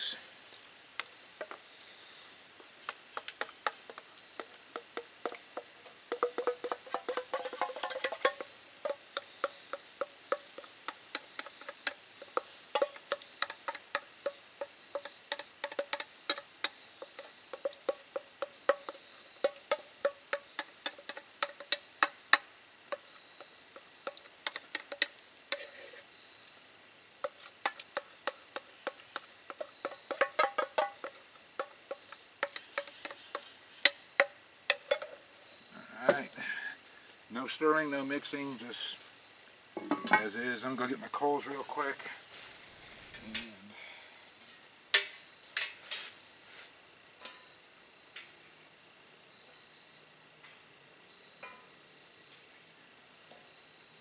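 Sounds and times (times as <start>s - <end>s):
spatula scraping metal bowl: 3.2s - 21.8s, 22.9s - 26.1s, 27.2s - 34.0s.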